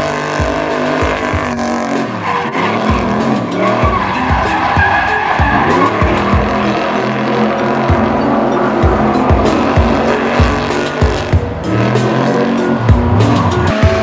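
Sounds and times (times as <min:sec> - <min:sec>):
music with steady beat: 0:00.0 - 0:14.0
truck engine: 0:00.0 - 0:14.0
tyre screech: 0:00.1 - 0:11.1.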